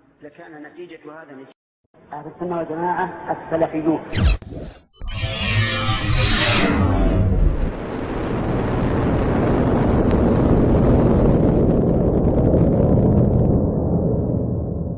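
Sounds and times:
dense rumbling roar: 0:05.1 - 0:14.9.

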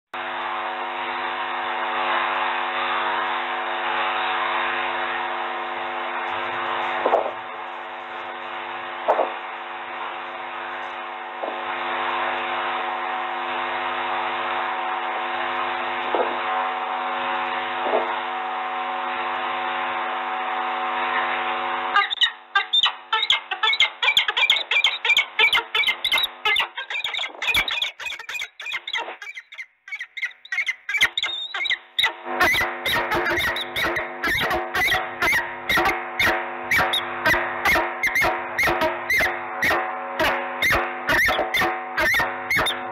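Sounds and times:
faint hum: 0:00.2 - 0:42.9
falcons calling: 0:22.0 - 0:42.8.

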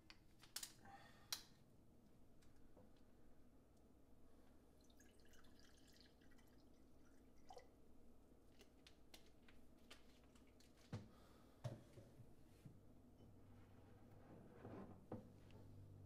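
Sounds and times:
liquid pouring into glass: 0:04.8 - 0:07.7.

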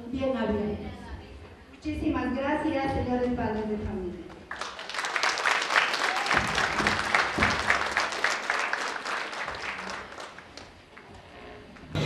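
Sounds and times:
audience applauding: 0:04.5 - 0:11.1.

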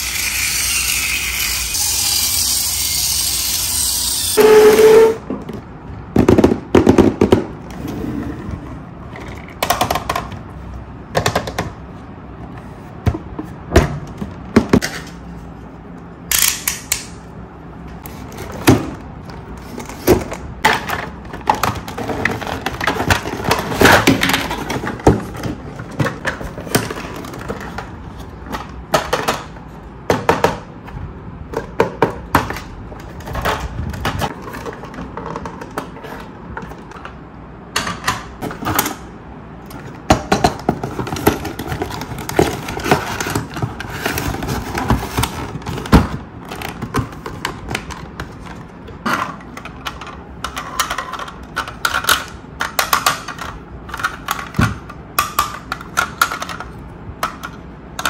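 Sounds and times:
plastic parts clicking and rattling: 0:18.0 - 0:30.5, 0:39.7 - 0:58.0.

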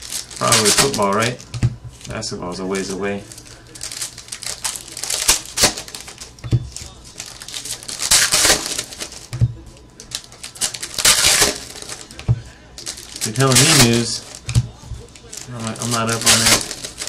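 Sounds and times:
foil pack tearing and crinkling: 0:00.0 - 0:02.2, 0:03.2 - 0:09.3, 0:10.0 - 0:12.2, 0:12.8 - 0:17.0
cards clicking: 0:12.8 - 0:17.0.

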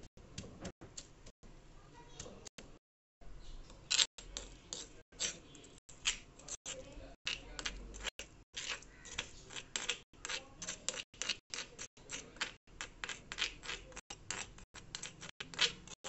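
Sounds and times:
spoon scraping stone pot: 0:03.8 - 0:16.0.

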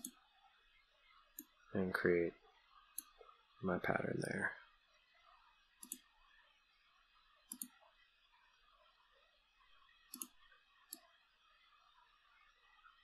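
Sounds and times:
faint room hiss: 0:00.0 - 0:13.0
mouse button clicks: 0:07.5 - 0:07.8, 0:10.1 - 0:10.3.

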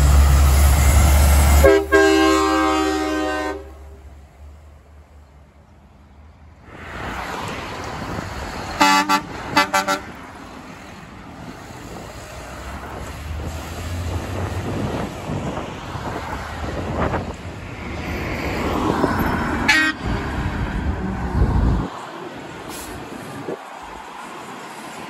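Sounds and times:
passing traffic: 0:00.0 - 0:25.0
truck engine rumble: 0:00.0 - 0:25.0
truck air horn blasts: 0:01.5 - 0:04.0, 0:08.8 - 0:10.2, 0:19.6 - 0:20.1.

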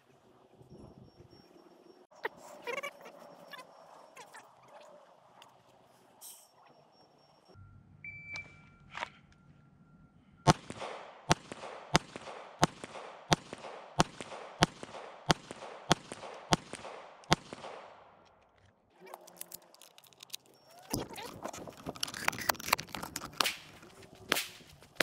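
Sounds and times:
shot timer beep: 0:07.5 - 0:09.5
pistol shots: 0:10.5 - 0:18.2, 0:23.4 - 0:24.8.

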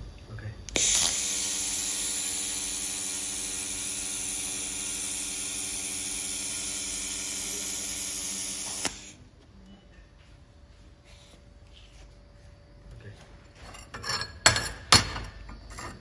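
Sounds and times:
even hum: 0:00.0 - 0:14.0
laser welder hissing: 0:00.7 - 0:09.2
welder click: 0:00.7 - 0:09.2.

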